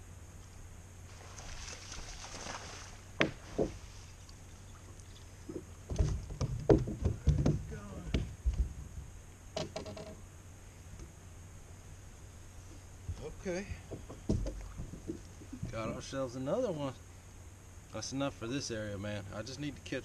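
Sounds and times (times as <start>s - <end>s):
steady low hum: 0.0s - 20.0s
thumps on boat deck: 5.5s - 8.7s, 13.1s - 15.9s.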